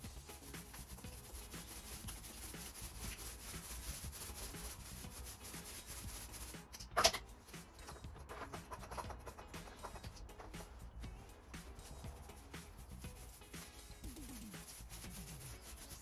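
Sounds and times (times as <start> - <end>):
paint roller rubbing on wall: 0.0 - 6.7, 11.8 - 16.0.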